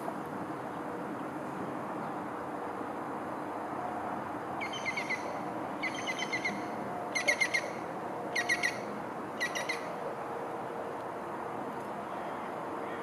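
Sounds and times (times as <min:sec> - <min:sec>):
small bird chirping: 0:04.6 - 0:06.6, 0:08.4 - 0:08.8.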